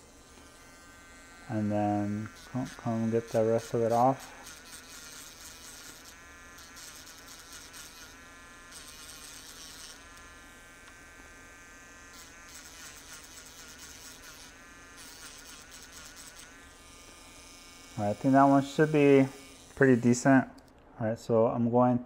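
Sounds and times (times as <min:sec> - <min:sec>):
rotary tool whining: 0:00.0 - 0:20.8
grinding hiss on metal: 0:01.4 - 0:10.0.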